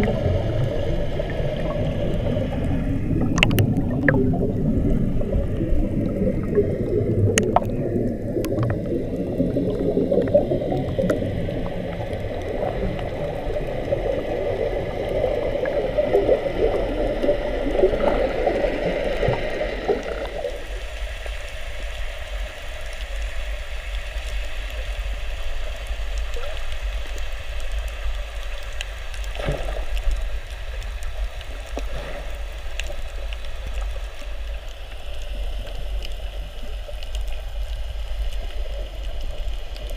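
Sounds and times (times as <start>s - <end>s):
low rumble: 0.0s - 21.0s
underwater air bubbles churning: 0.0s - 21.8s
muffled underwater hiss: 0.0s - 39.9s
faint clicks: 1.6s - 4.3s, 5.5s - 14.2s, 21.1s - 39.9s.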